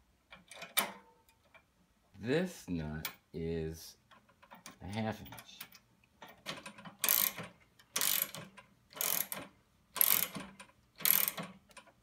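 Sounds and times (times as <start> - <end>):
ratchet wrench clicking: 7.0 - 11.9.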